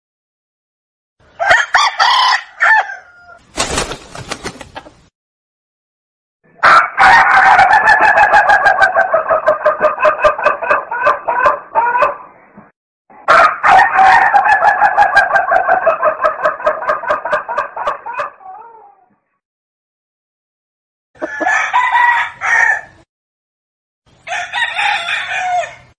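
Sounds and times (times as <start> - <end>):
rooster crowing: 1.4 - 3.4, 6.6 - 12.2, 13.3 - 16.5, 21.2 - 23.0, 24.2 - 25.9.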